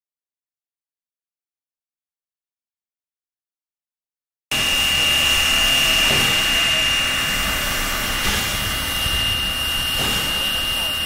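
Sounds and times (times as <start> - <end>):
high whistling tone: 4.5 - 11.0
steam locomotive hissing steam: 4.5 - 11.0
wind rumbling on microphone: 7.2 - 10.8.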